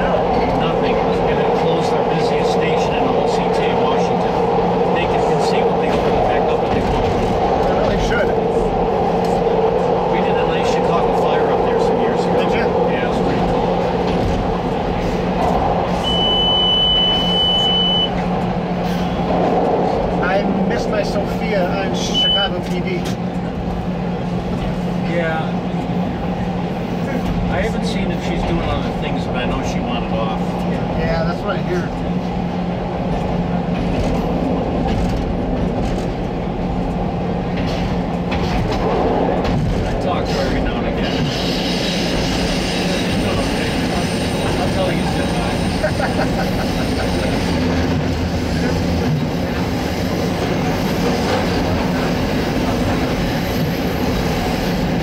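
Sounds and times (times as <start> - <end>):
train rumbling in tunnel: 0.0 - 55.0
high-pitched electronic beep: 16.0 - 18.2.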